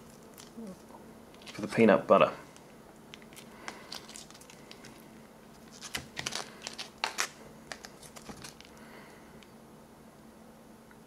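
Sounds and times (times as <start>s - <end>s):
foil pouch tearing and crinkling: 3.1s - 8.8s.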